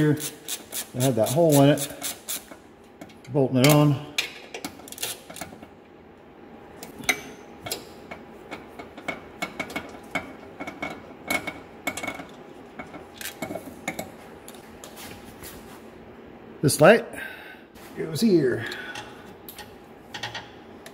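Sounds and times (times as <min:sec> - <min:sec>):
hand ratchet clicking: 0:00.2 - 0:01.1.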